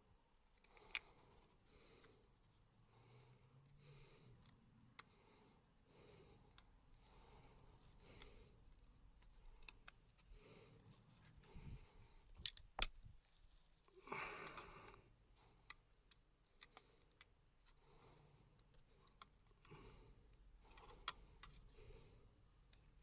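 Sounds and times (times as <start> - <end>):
small plastic clicks: 0.5 - 2.2, 9.2 - 10.3, 12.2 - 13.8, 15.6 - 17.8, 18.4 - 21.8.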